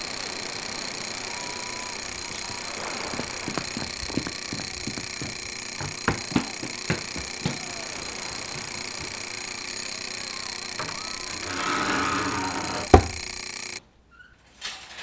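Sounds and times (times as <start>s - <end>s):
steady hiss: 0.0s - 13.8s
sharp knocks: 3.4s - 9.4s, 10.8s - 13.4s
faint creak: 10.4s - 14.4s.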